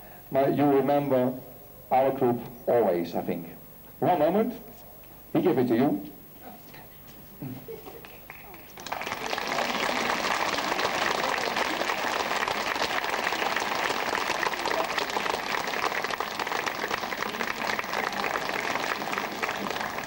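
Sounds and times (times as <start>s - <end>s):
audience applause: 8.0s - 20.0s.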